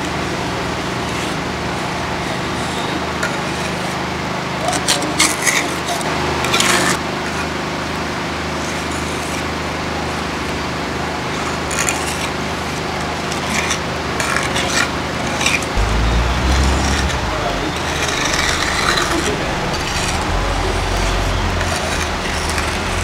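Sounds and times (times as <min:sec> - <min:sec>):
steady low hum: 0:15.7 - 0:23.0.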